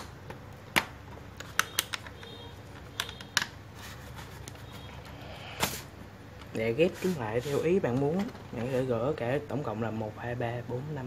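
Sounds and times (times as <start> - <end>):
plastic pieces clicking: 0.0 - 3.6.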